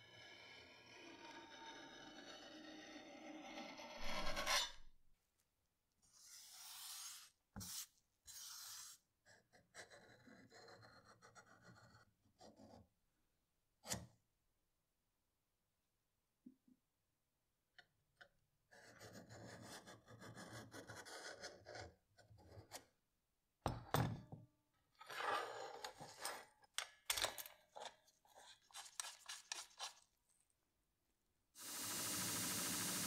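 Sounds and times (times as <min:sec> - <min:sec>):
metal scraping on metal: 0:01.2 - 0:04.9.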